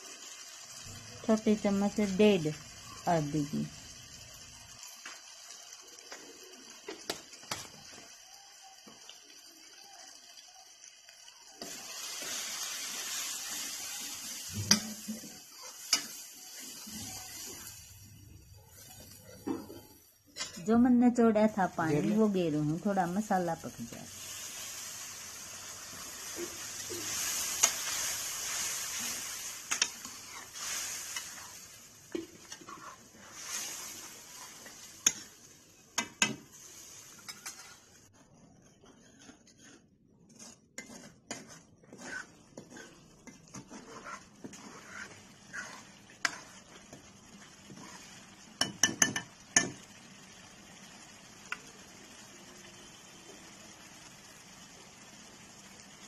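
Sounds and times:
masala sizzling in a metal pan: 0:00.0 - 0:56.0
ladle stirring and clinking on pan: 0:14.6 - 0:17.7, 0:25.9 - 0:38.0, 0:38.8 - 0:49.9.

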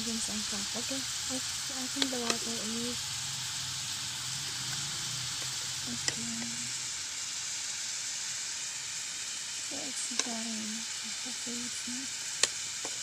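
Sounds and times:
vegetables sizzling in a pan: 0:00.0 - 0:13.0.

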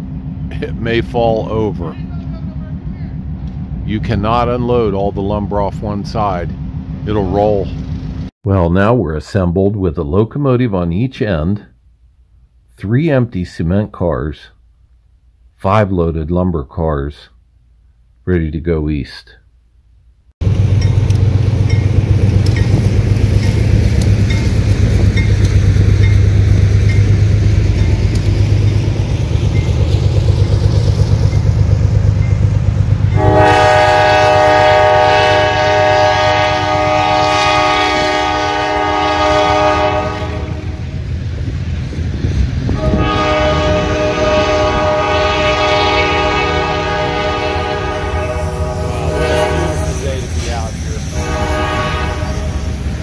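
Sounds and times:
freight train rumbling: 0:00.0 - 0:08.3, 0:20.4 - 0:53.0
locomotive air horn blasts: 0:33.1 - 0:41.0, 0:42.7 - 0:52.9.

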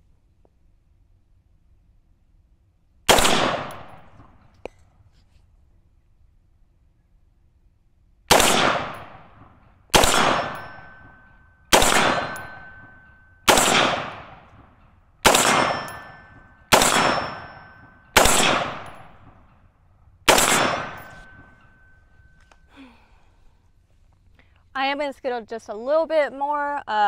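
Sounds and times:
rifle shots echoing: 0:03.1 - 0:04.5, 0:08.3 - 0:19.6, 0:20.2 - 0:22.0
thin ringing tone: 0:10.6 - 0:13.5, 0:20.8 - 0:22.7.

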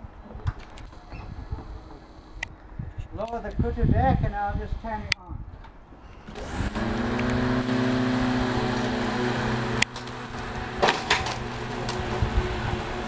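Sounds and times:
rough running noise with knocks: 0:00.2 - 0:02.4, 0:05.6 - 0:13.0
electric motor hum: 0:06.3 - 0:13.0.

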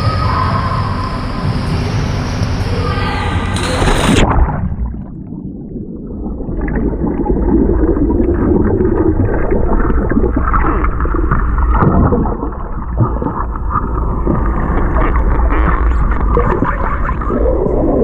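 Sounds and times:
low underwater hum: 0:00.0 - 0:18.0
churning water and bubbles: 0:03.5 - 0:18.0.

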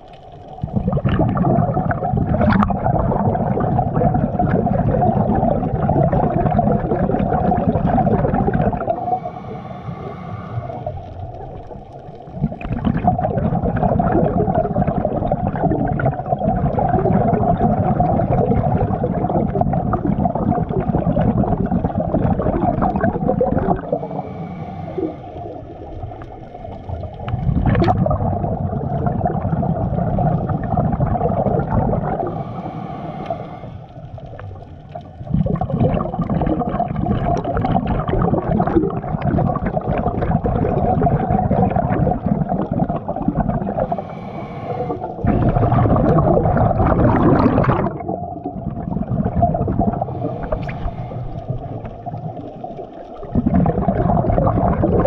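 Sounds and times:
exhaled bubbles gurgling underwater: 0:00.0 - 0:55.0
regulator inhalation hiss: 0:09.0 - 0:11.0, 0:23.9 - 0:25.8, 0:32.2 - 0:34.2, 0:43.8 - 0:45.2, 0:50.1 - 0:51.6.

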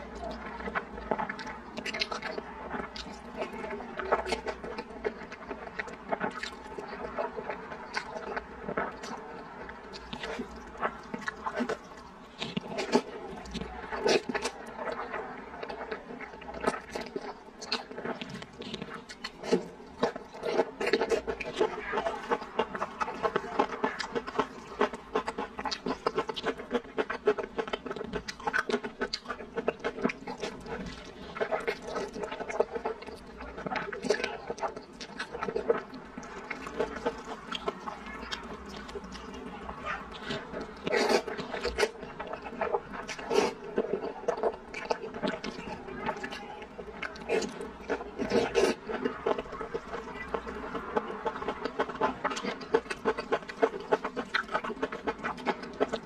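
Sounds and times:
wet chewing and lip-smacking: 0:00.0 - 0:56.0
slurping noodles: 0:15.8 - 0:56.0.

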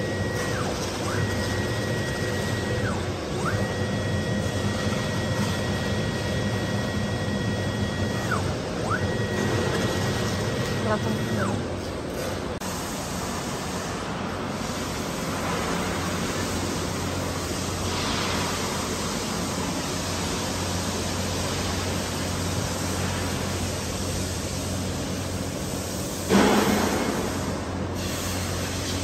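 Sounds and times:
machinery hiss: 0:12.6 - 0:29.0.

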